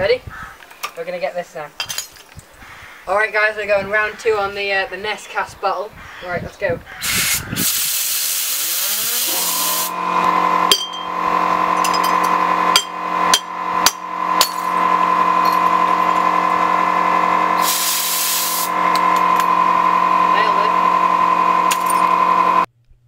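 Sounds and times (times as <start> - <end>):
compressed air hiss: 7.0 - 10.4, 17.6 - 18.8
fidget spinner humming: 7.2 - 22.7.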